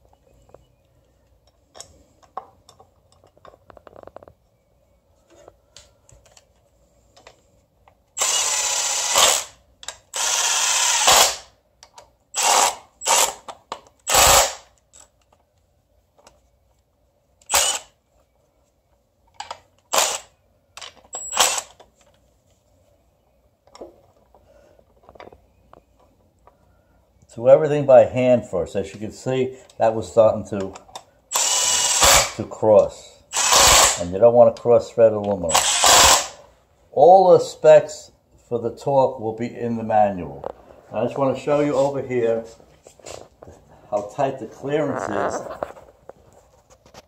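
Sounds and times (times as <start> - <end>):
impact wrench bursts: 8.2 - 11.5, 12.3 - 14.7, 17.5 - 18.0, 19.9 - 20.3, 21.1 - 21.8, 31.3 - 32.4, 33.3 - 34.1, 35.5 - 36.4.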